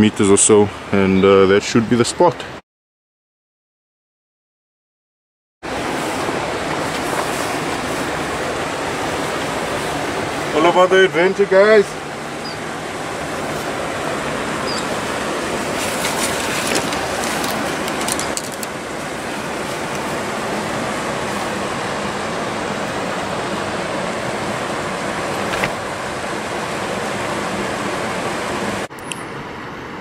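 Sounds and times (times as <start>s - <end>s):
river rapids rushing: 5.7s - 28.9s.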